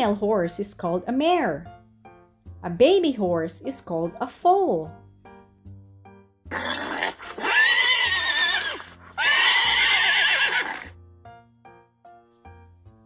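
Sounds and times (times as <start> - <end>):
light background music: 0.0 - 13.0
horse whinnying: 6.5 - 11.0.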